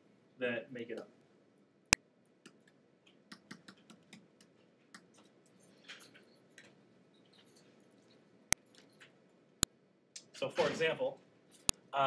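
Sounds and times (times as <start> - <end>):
stylus tapping and scratching: 2.4 - 5.4.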